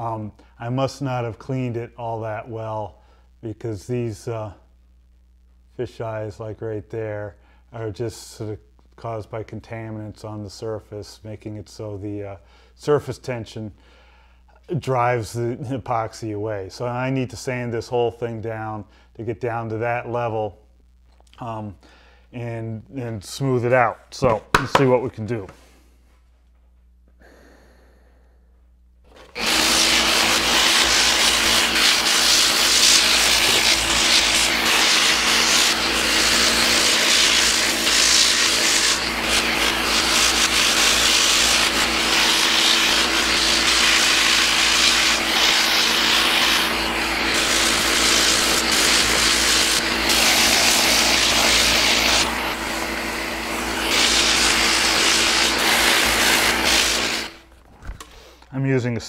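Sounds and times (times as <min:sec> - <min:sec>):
orbital sander grinding: 0:29.1 - 0:57.5.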